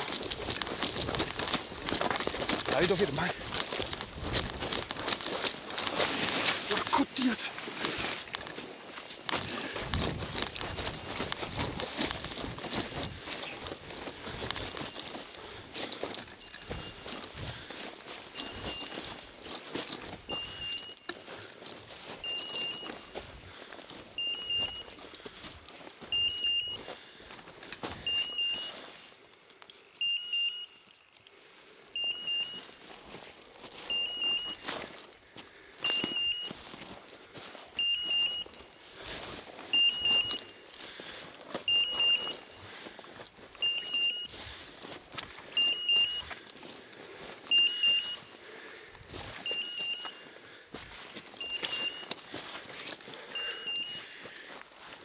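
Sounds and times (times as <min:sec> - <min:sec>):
footsteps through dry grass: 0:00.0 - 0:29.8, 0:31.2 - 0:55.0
short high beeps: 0:16.3 - 0:17.1, 0:18.3 - 0:19.0, 0:20.3 - 0:21.2, 0:22.2 - 0:23.2, 0:24.1 - 0:24.9, 0:26.1 - 0:26.8, 0:27.9 - 0:28.8, 0:29.8 - 0:31.2, 0:32.0 - 0:32.8, 0:33.8 - 0:34.6, 0:35.8 - 0:36.6, 0:37.8 - 0:38.6, 0:39.7 - 0:40.6, 0:41.6 - 0:42.5, 0:43.5 - 0:44.5, 0:45.5 - 0:46.4, 0:47.4 - 0:48.4, 0:49.3 - 0:50.2, 0:51.3 - 0:52.2, 0:53.3 - 0:54.2.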